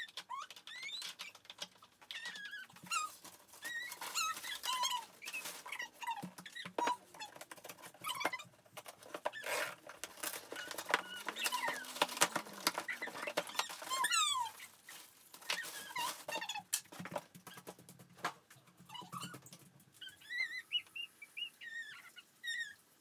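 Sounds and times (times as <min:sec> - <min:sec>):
plastic packaging crinkling: 0:01.0 - 0:17.6.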